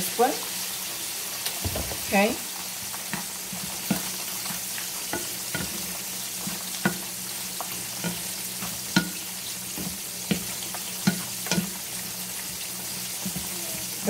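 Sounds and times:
shrimp sizzling in a skillet: 0.0s - 14.0s
wooden spatula scraping and knocking pan: 3.0s - 13.5s.

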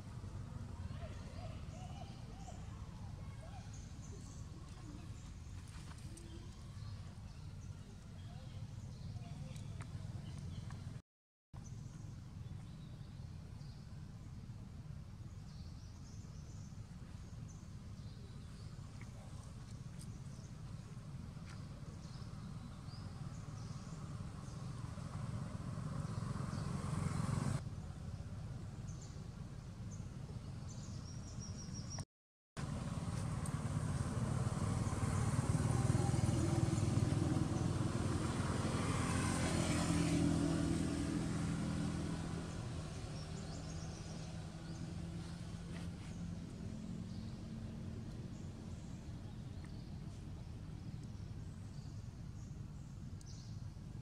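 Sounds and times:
passing motor traffic rumble: 0.0s - 11.0s, 16.8s - 31.4s, 32.6s - 54.0s
engine hum: 11.6s - 32.0s, 32.6s - 54.0s.

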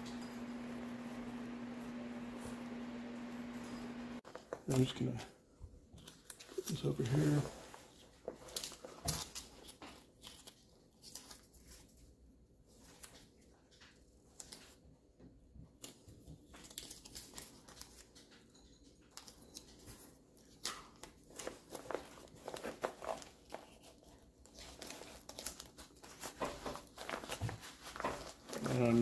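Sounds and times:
tape peeling and ripping: 8.4s - 11.8s, 15.8s - 18.1s, 20.4s - 28.8s.

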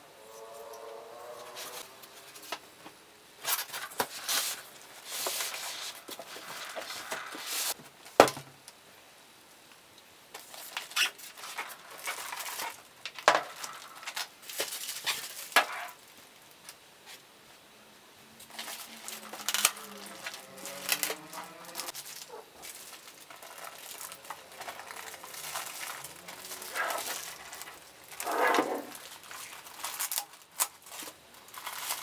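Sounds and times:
cardboard and styrofoam scraping: 3.4s - 7.8s, 18.5s - 32.0s
plastic wrap crinkling: 3.4s - 7.8s, 10.3s - 17.2s, 18.4s - 32.0s.

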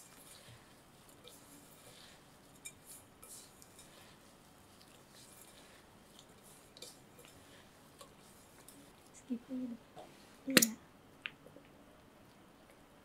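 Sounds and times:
crumbs crackling and rustling: 0.0s - 9.2s.

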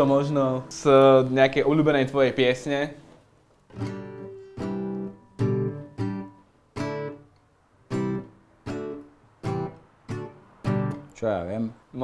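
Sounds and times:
acoustic guitar chords strummed: 3.7s - 7.3s, 7.9s - 11.1s.

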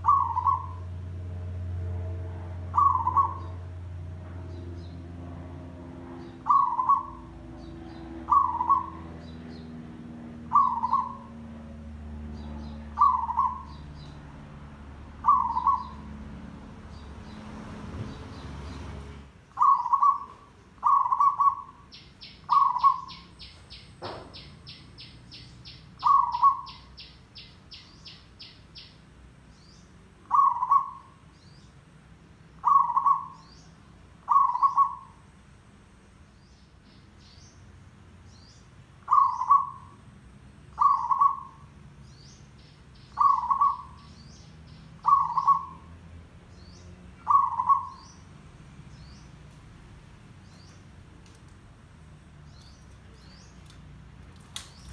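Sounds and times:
dove cooing: 0.0s - 0.9s, 2.7s - 3.6s, 6.4s - 7.4s, 8.1s - 9.8s, 10.4s - 11.7s, 12.8s - 13.7s, 15.2s - 16.1s, 19.6s - 21.8s, 22.5s - 23.2s, 26.0s - 26.9s, 30.2s - 31.2s, 32.6s - 33.4s, 34.3s - 35.2s, 39.1s - 40.0s, 40.8s - 41.7s, 43.2s - 44.0s, 45.0s - 45.9s, 47.2s - 48.1s.

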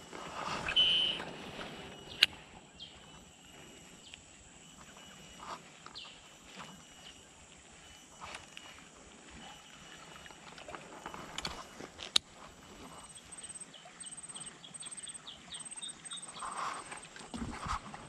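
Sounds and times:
rustling through brush: 0.0s - 2.6s.

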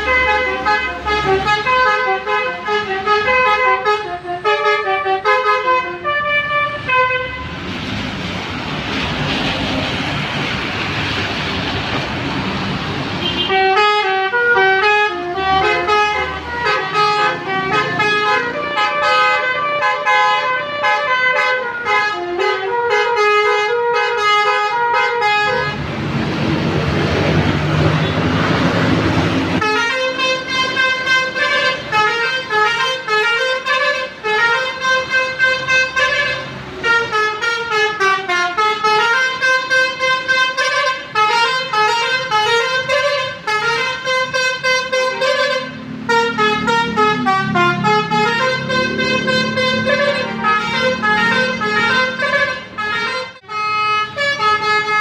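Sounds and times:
bus horns playing tunes: 0.0s - 7.6s, 13.2s - 25.9s, 27.5s - 55.0s
passing traffic: 0.0s - 55.0s
loud rushing noise: 7.4s - 13.4s, 25.6s - 32.0s.

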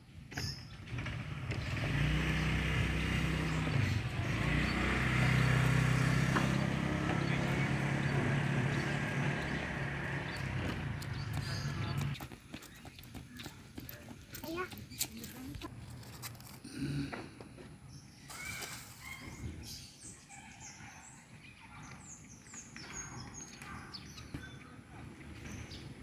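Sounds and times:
vehicle engine running: 0.8s - 12.3s.

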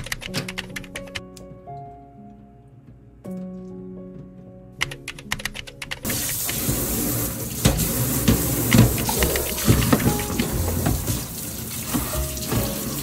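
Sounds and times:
background music: 0.0s - 13.0s
tap running into sink: 6.1s - 13.0s.

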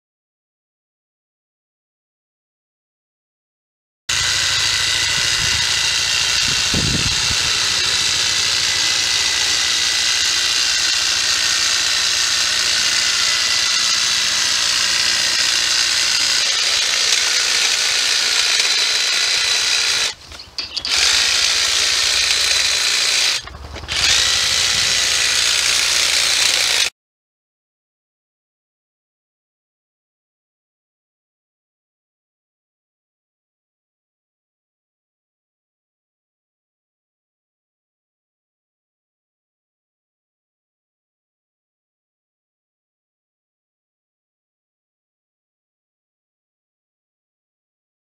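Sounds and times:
hedge trimmer whining: 4.1s - 26.9s.

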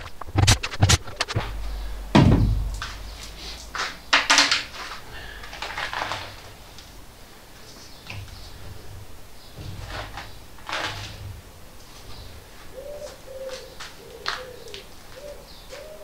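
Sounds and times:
scrapes and knocks on trim: 8.1s - 12.3s.

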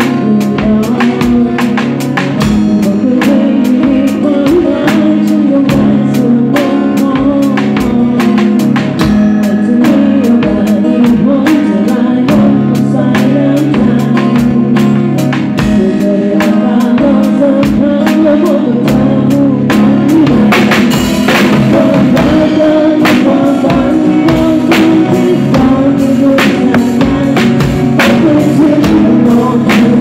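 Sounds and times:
drum hits and cymbal strokes: 0.0s - 30.0s
live band playing: 0.0s - 30.0s.

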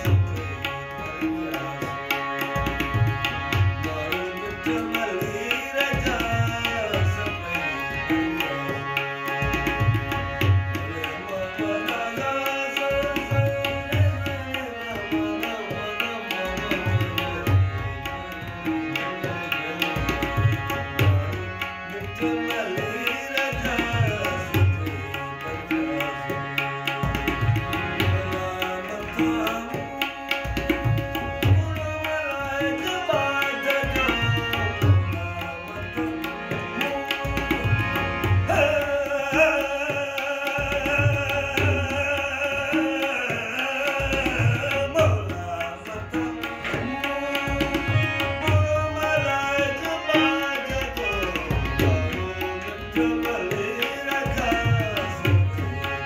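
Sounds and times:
harmonium drone: 0.0s - 56.0s
man singing: 0.0s - 56.0s
tabla rhythm: 0.0s - 56.0s.

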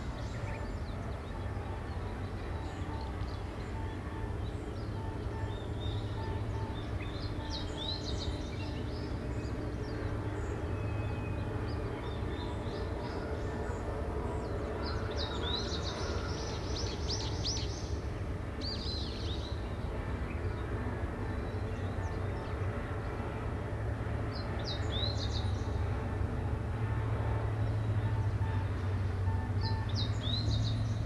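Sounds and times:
small birds chirping: 0.2s - 13.9s.

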